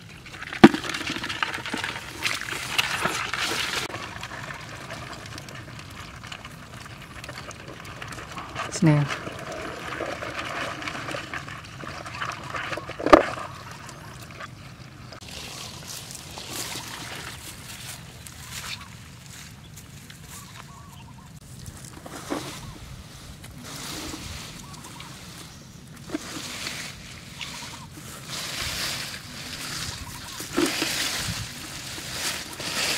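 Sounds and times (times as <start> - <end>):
leafy plants rustling: 0.0 - 4.4, 15.2 - 32.9.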